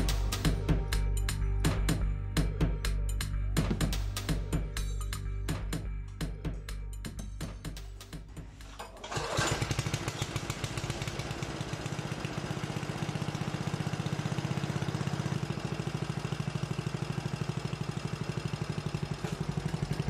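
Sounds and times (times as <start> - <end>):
lawn mower engine running: 0.0 - 1.1, 8.0 - 20.0.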